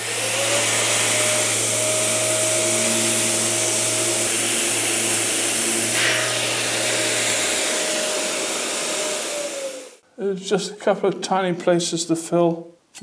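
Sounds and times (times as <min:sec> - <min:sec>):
power sander hissing and whining: 0:00.0 - 0:10.0.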